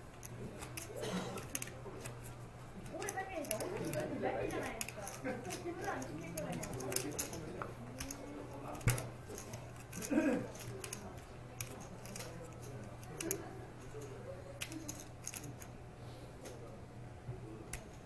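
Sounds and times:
steady low hum: 0:00.0 - 0:18.0
poker chips clicking: 0:02.8 - 0:13.5, 0:14.6 - 0:15.7.

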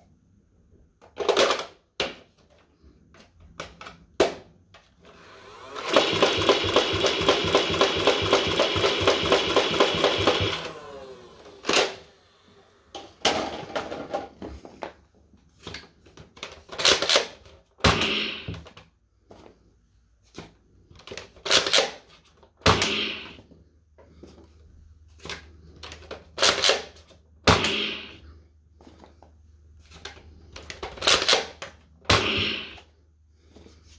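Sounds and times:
toy blaster rapid firing: 0:05.6 - 0:12.2, 0:22.7 - 0:23.4, 0:27.5 - 0:28.2, 0:31.0 - 0:32.9.

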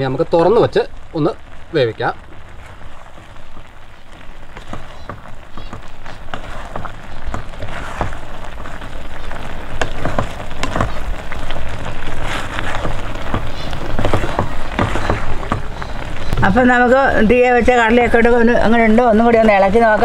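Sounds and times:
curry bubbling and popping: 0:00.0 - 0:20.0
wooden spatula scraping: 0:02.2 - 0:16.4.

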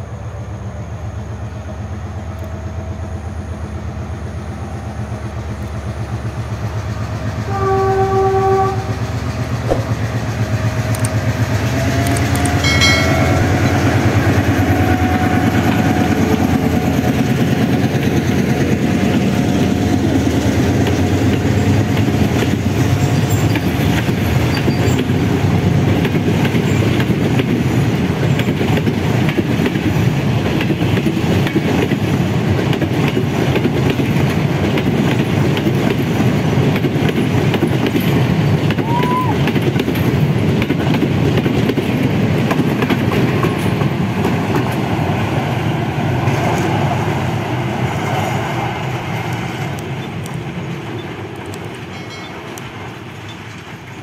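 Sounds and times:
diesel locomotive engine rumbling: 0:00.0 - 0:54.0
train horn: 0:07.4 - 0:09.1, 0:11.6 - 0:16.8
wheels clattering over rail joints: 0:49.3 - 0:54.0.

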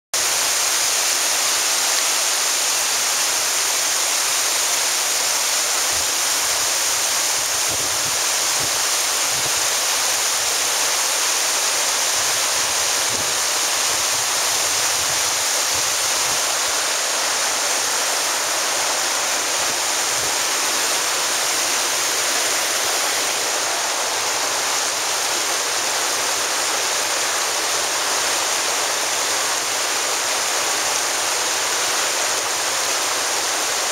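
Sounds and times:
waterfall rushing over rocks: 0:00.2 - 0:33.9.

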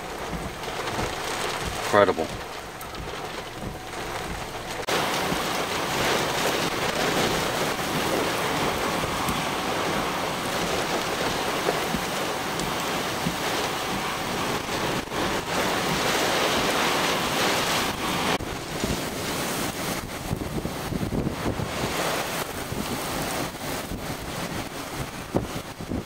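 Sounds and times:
heavy rain: 0:00.0 - 0:26.0
hurricane wind: 0:00.0 - 0:26.0.

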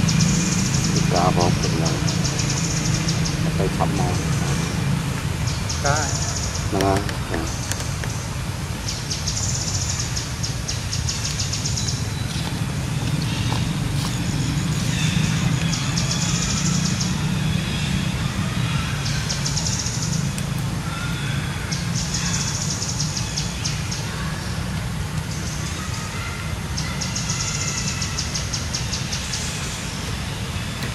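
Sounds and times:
steady low rumble: 0:00.0 - 0:18.9
high rapid bird trills: 0:00.0 - 0:30.9.

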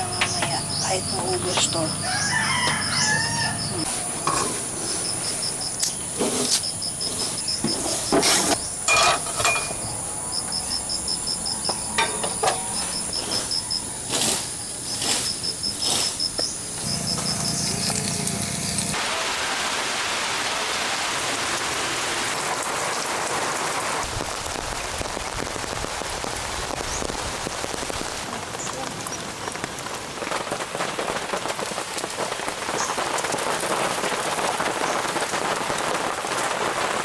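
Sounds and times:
steady rain falling: 0:00.0 - 0:07.8, 0:16.7 - 0:37.0
metal knocks and clinks: 0:08.9 - 0:09.9, 0:12.0 - 0:12.8.

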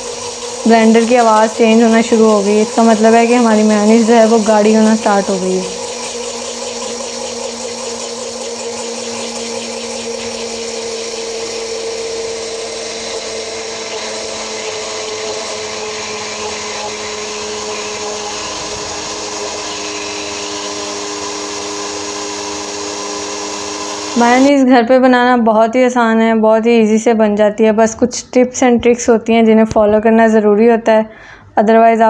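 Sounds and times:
blender motor whirring: 0:00.0 - 0:24.6.

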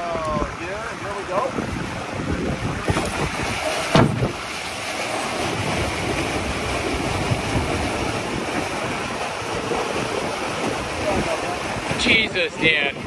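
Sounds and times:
wind buffeting microphone: 0:00.0 - 0:13.0
water hissing along boat hull: 0:01.5 - 0:13.0
loud thump: 0:03.9 - 0:04.4.

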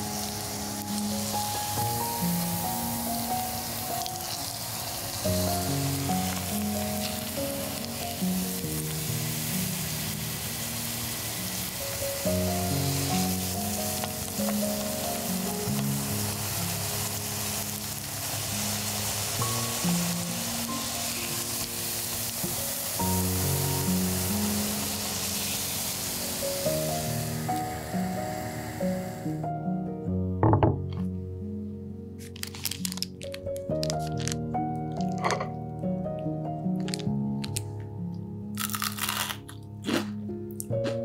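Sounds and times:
hash brown sizzling in a pan: 0:00.0 - 0:29.4
slow background music: 0:00.0 - 0:41.0.

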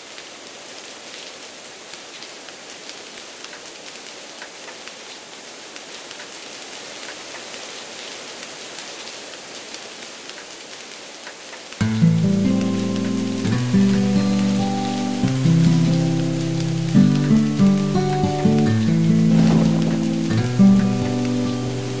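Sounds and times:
steady rain: 0:00.0 - 0:22.0
raindrops ticking: 0:11.2 - 0:22.0.

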